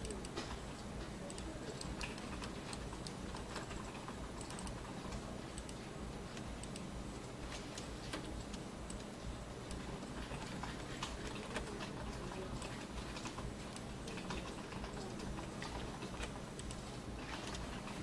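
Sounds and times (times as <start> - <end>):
mouse and keyboard clicks: 0.0 - 9.1
low steady hum: 0.0 - 18.0.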